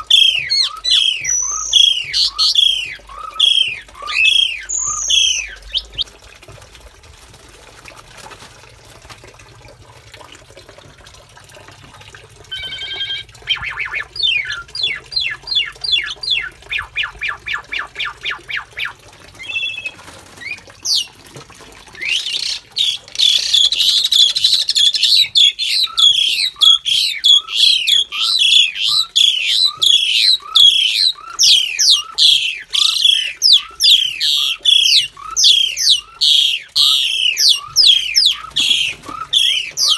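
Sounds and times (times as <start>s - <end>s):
starlings chattering calls: 0.0s - 6.0s, 12.5s - 21.1s, 22.0s - 39.9s.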